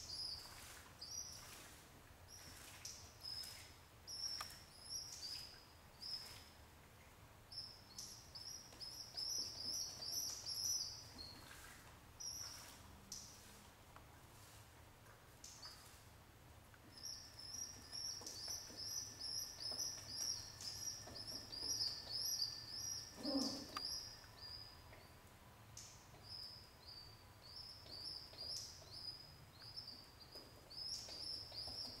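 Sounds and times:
pigeon squab peeping: 23.0s - 24.0s.

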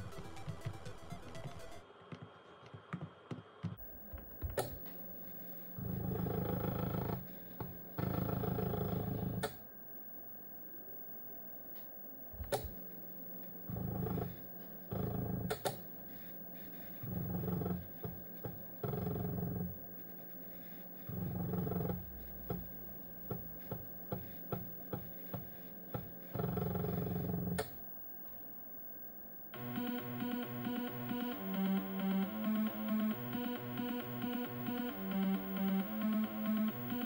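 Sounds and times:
disk drive buzzing: 3.7s - 9.7s, 12.3s - 27.9s, 29.5s - 37.0s.

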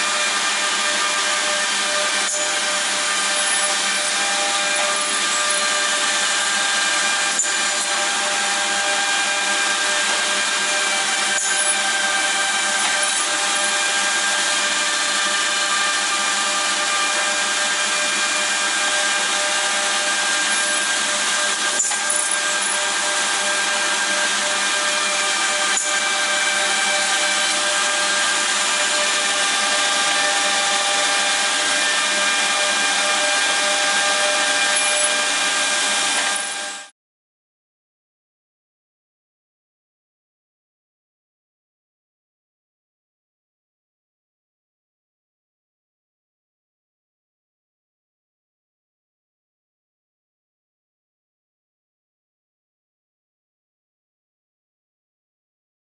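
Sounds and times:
machine motors whining: 10.3s - 36.8s.

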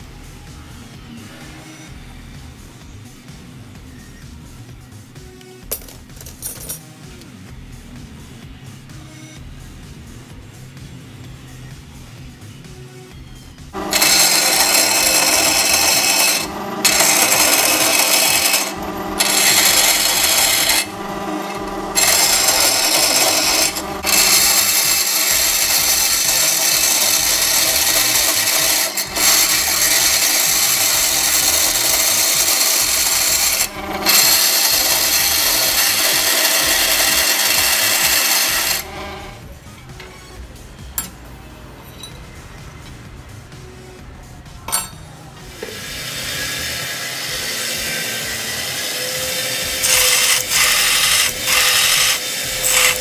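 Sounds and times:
saw motor hum: 13.7s - 39.5s, 45.6s - 53.0s
bandsaw cutting metal: 13.7s - 40.4s, 45.6s - 53.0s.

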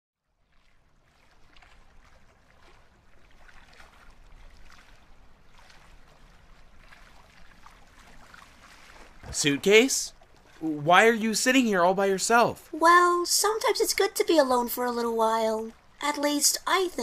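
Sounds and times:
small splashes: 0.2s - 16.1s
low steady hum: 0.2s - 17.0s
water lapping gently: 0.2s - 17.0s.

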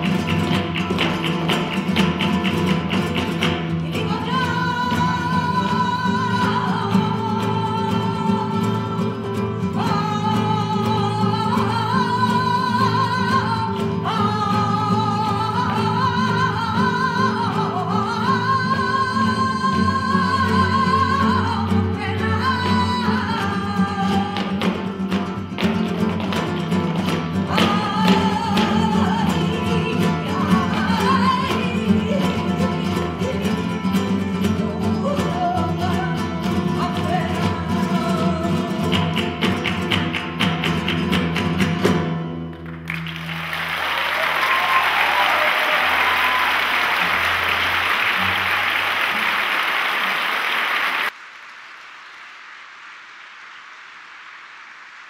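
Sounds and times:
flamenco guitars: 0.0s - 51.1s
person singing: 27.4s - 39.8s.

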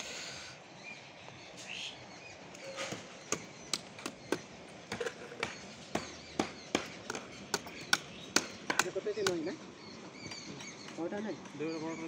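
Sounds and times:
outdoor background noise: 0.0s - 12.0s
hammer knocking on wooden planks: 2.9s - 9.4s.

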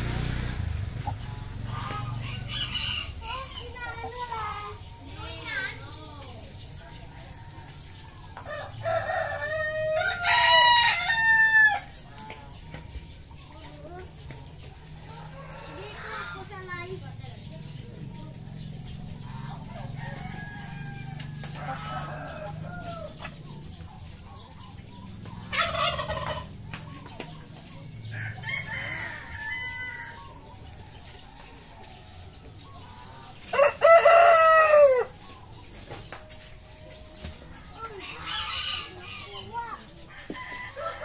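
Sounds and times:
chickens clucking: 0.0s - 41.0s
rooster crowing: 28.2s - 30.3s, 33.5s - 35.1s.

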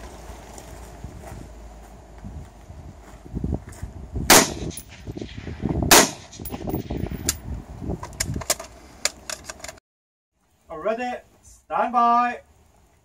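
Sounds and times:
rifle shots: 4.3s - 7.1s.

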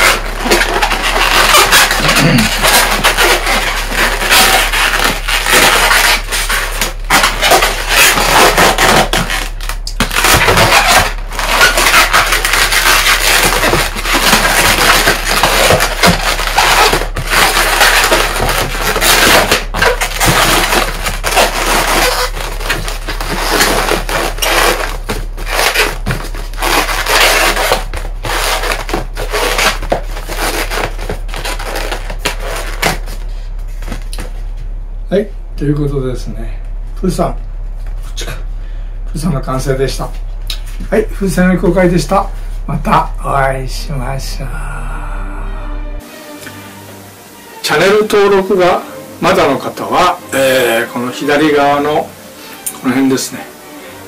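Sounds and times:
balloons squeaking and rubbing: 0.0s - 34.6s, 46.0s - 54.0s.

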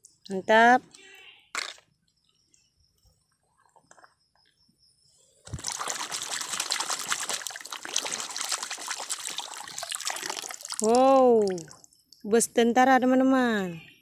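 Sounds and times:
hand splashing in muddy water: 5.5s - 11.8s.

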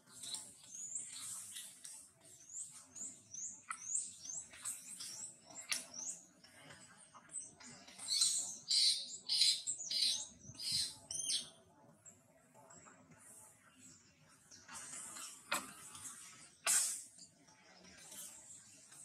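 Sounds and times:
birds chirping: 7.3s - 11.5s.

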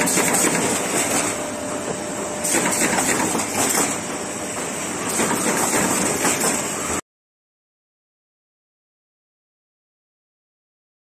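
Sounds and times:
machine clatter and clicking: 0.0s - 1.4s, 2.4s - 6.8s.

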